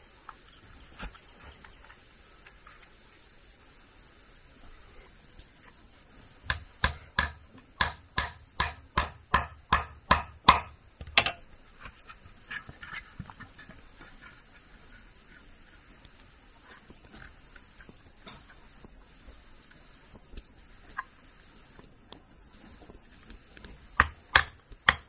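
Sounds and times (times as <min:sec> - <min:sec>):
insects buzzing: 0:00.0 - 0:25.0.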